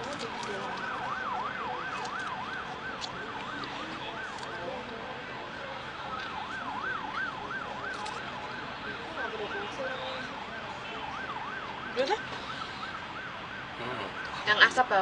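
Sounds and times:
emergency siren yelping: 0.0s - 15.0s.

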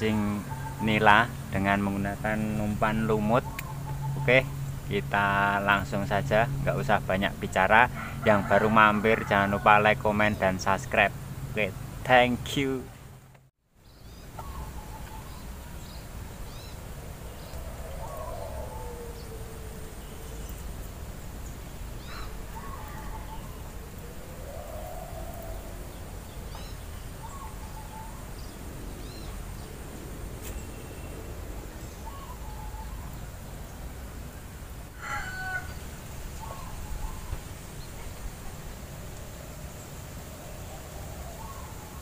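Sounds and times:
long rising and falling bird calls: 0.0s - 11.7s, 13.8s - 34.1s, 35.0s - 42.0s
birds chirping and calling: 0.0s - 12.3s, 13.9s - 33.4s, 35.0s - 42.0s
steady low rumble: 0.0s - 12.4s, 14.1s - 35.0s.

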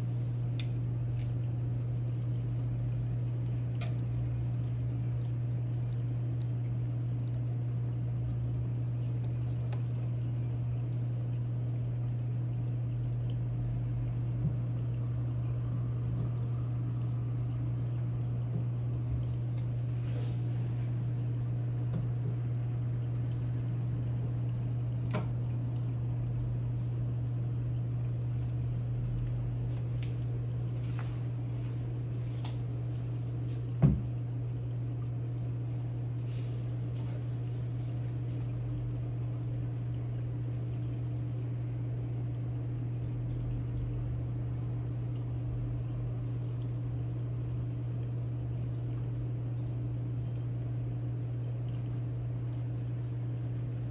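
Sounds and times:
pump hum: 0.0s - 53.9s
water pouring and trickling: 1.0s - 41.6s.

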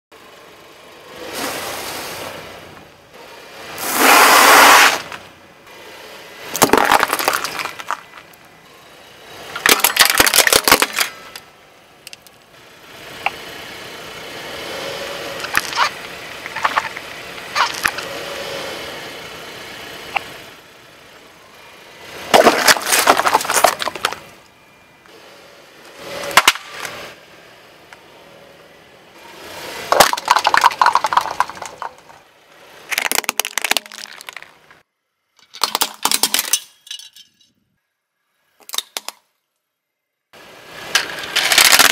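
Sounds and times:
tyre crushing brittle objects: 6.5s - 8.4s, 9.6s - 11.4s, 15.4s - 17.0s, 17.6s - 18.1s, 22.3s - 24.2s, 29.9s - 32.1s, 32.9s - 34.6s, 41.0s - 41.9s.

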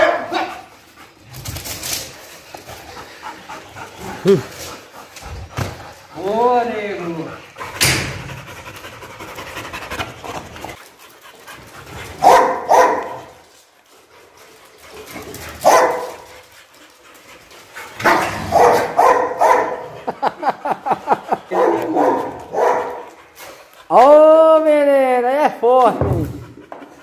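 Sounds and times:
dog barking: 0.0s - 0.7s, 12.2s - 13.3s, 15.6s - 16.2s, 18.0s - 19.9s, 21.5s - 23.1s.

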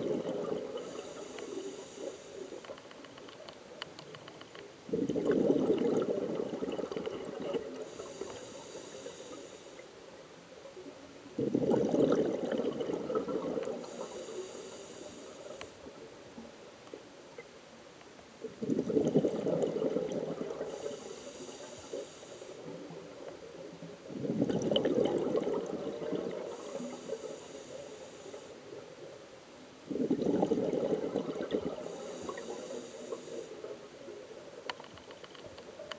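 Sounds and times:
exhaled bubbles underwater: 0.0s - 2.7s, 4.9s - 9.5s, 10.8s - 16.5s, 18.4s - 29.1s, 29.8s - 34.6s
faint steady hiss: 0.0s - 35.9s
regulator hiss: 0.7s - 2.8s, 7.7s - 10.2s, 13.8s - 15.9s, 20.6s - 23.6s, 26.1s - 29.5s, 31.8s - 34.3s.

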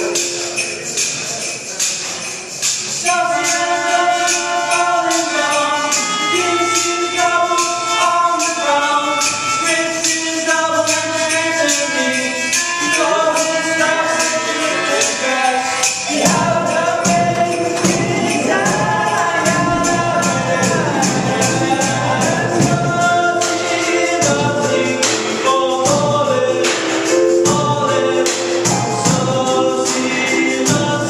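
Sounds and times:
percussion beat: 0.0s - 31.0s
bass guitar: 16.3s - 25.0s.

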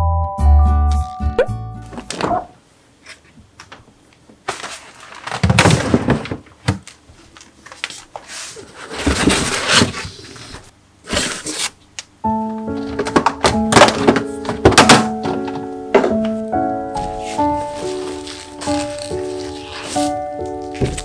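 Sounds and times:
rustling produce bags: 12.8s - 21.0s.

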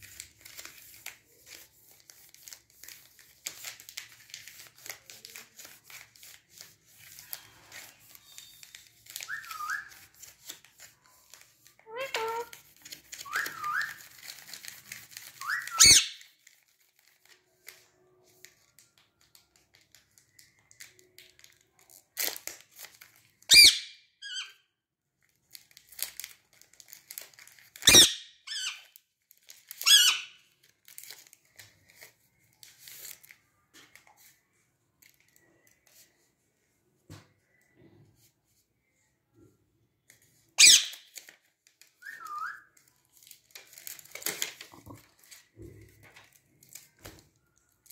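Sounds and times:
parakeets screeching: 15.4s - 16.2s, 23.5s - 24.5s, 27.9s - 28.8s, 40.6s - 41.1s.

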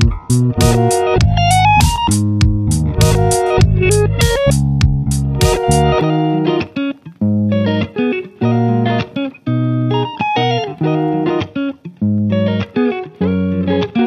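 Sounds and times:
bass line: 0.0s - 6.1s
plucked guitar music: 0.0s - 14.0s.

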